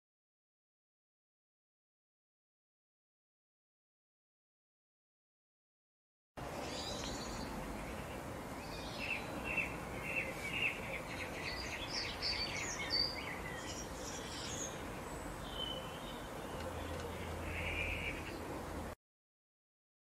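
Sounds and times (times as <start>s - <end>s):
songbirds chirping: 6.4s - 19.0s
steady background hiss: 6.4s - 19.0s.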